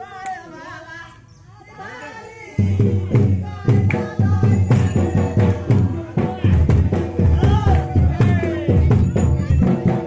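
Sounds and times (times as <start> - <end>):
people's voices: 0.0 - 10.0
loud fast drumming: 2.6 - 10.0.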